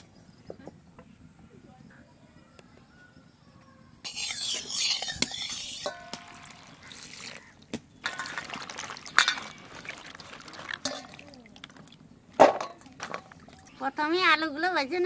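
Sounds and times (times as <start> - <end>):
metallic ring: 4.1 - 6.5
hands swishing beans in water: 4.1 - 12.0
water splashing and trickling: 5.8 - 14.4.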